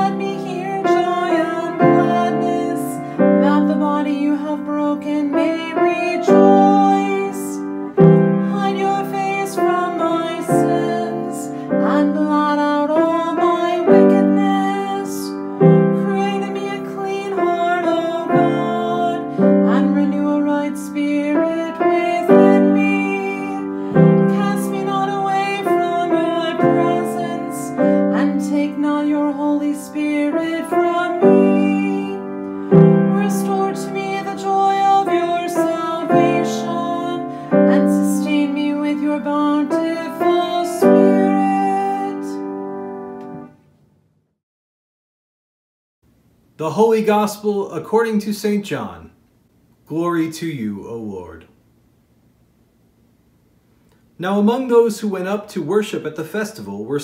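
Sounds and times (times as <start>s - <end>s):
psalm chant singing: 0.0s - 42.5s
piano accompaniment: 0.0s - 43.6s.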